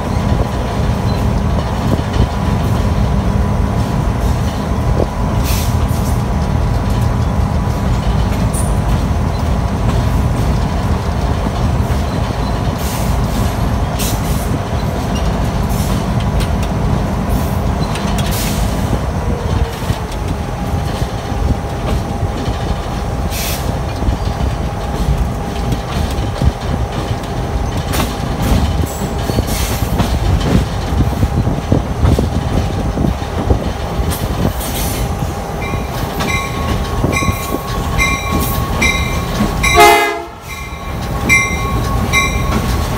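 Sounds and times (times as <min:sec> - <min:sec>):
diesel locomotive engine rumble: 0:00.0 - 0:42.9
wheels clicking over rail joints: 0:00.0 - 0:42.9
ringing warning signal: 0:35.6 - 0:42.7.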